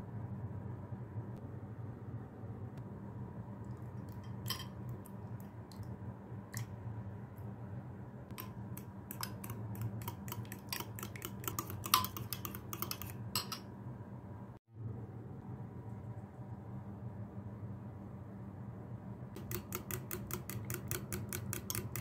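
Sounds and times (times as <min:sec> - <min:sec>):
low steady hum: 0:00.0 - 0:22.0
fork clinking against glass bowl: 0:04.2 - 0:04.8, 0:09.1 - 0:13.7.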